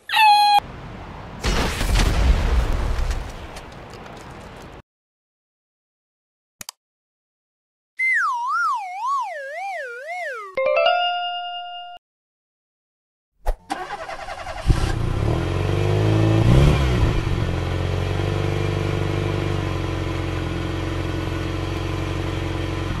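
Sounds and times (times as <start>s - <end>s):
bus engine starting and revving: 13.6s - 23.0s.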